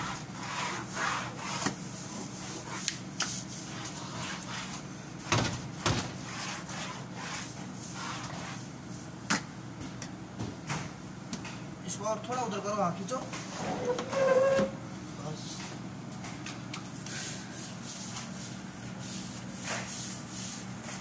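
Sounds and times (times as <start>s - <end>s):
broom scraping tiled floor: 17.1s - 21.0s.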